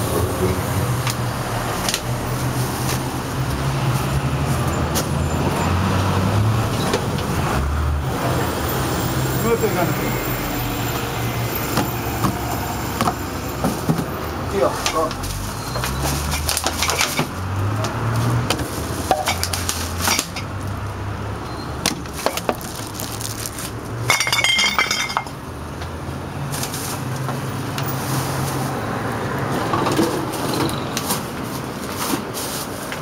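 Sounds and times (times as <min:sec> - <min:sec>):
plastic bags rustling: 0:18.1 - 0:20.6, 0:22.0 - 0:25.2.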